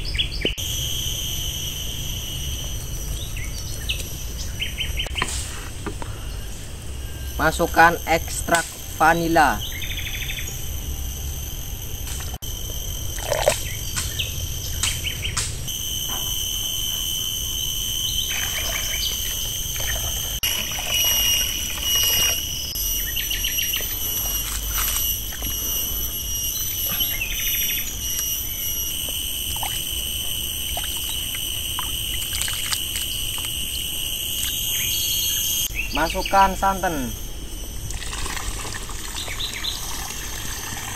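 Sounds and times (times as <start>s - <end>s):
insects buzzing: 0.0s - 40.9s
birds chirping: 18.0s - 24.4s, 25.6s - 28.9s, 34.5s - 37.4s.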